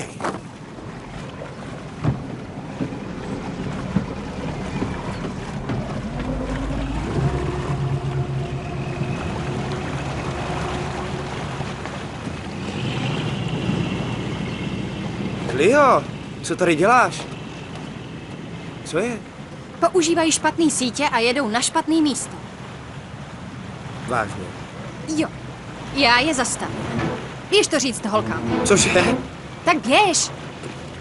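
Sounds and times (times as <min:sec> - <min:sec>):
boat engine running: 0:00.5 - 0:19.7.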